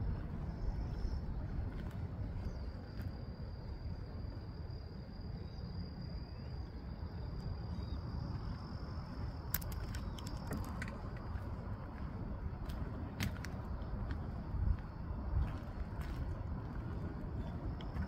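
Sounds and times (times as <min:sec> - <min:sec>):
low rumbling noise: 0:00.0 - 0:18.0
high-pitched insect trill: 0:02.4 - 0:11.7
sharp clicks: 0:09.5 - 0:11.0.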